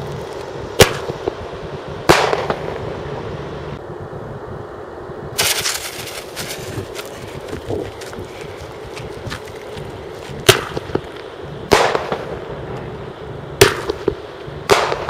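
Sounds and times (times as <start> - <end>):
firework crackle: 5.4 - 12.6, 13.6 - 15.0.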